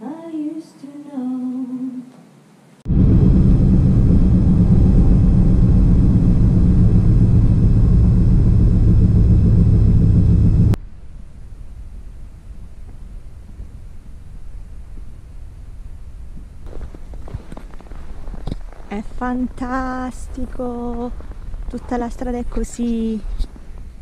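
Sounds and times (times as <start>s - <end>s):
vehicle road and engine rumble: 2.9s - 11.6s.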